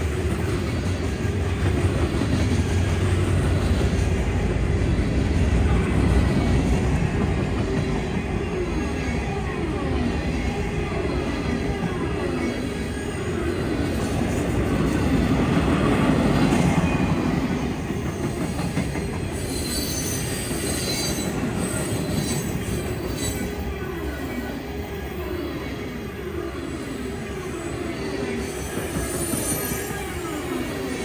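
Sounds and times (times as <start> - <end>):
train wheels rumbling on rails: 0.0 - 25.9, 27.0 - 31.0
high-pitched wheel squeal: 19.2 - 23.6, 27.5 - 30.5.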